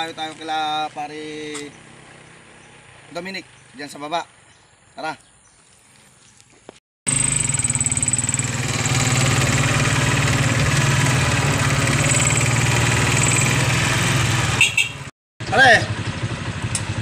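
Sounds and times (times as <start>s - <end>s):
wind: 0.0s - 17.0s
motorcycle engine running: 7.1s - 17.0s.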